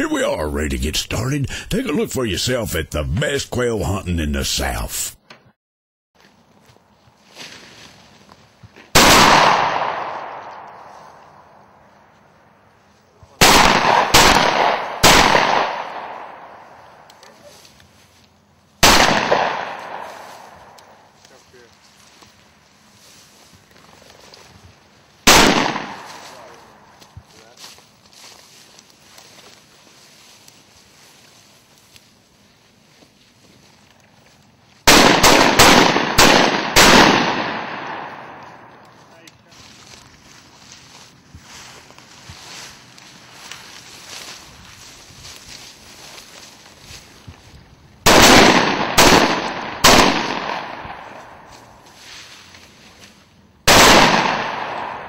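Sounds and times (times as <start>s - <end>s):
shotgun shots: 8.9s - 10.9s, 13.4s - 17.0s, 18.8s - 21.0s, 25.2s - 26.8s, 34.9s - 38.8s, 48.0s - 51.5s, 53.7s - 55.0s.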